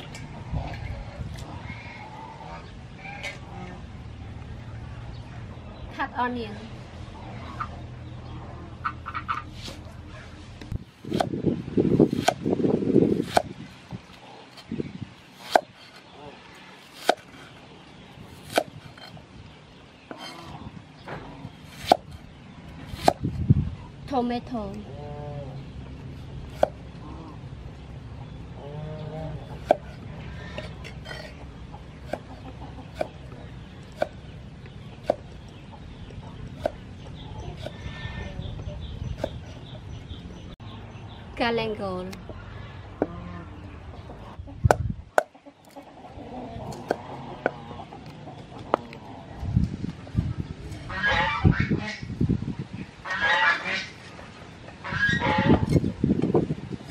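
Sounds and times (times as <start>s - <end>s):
cleaver chopping on wooden board: 13.2s - 13.5s, 17.0s - 17.3s, 21.8s - 22.1s.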